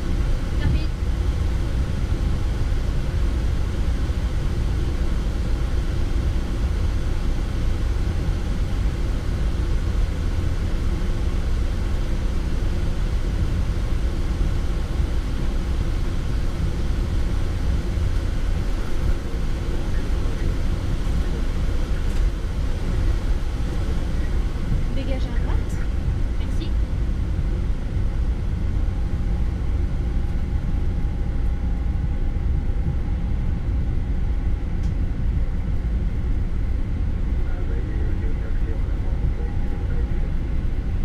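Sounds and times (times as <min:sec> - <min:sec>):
aircraft cockpit rumble: 0:00.0 - 0:41.0.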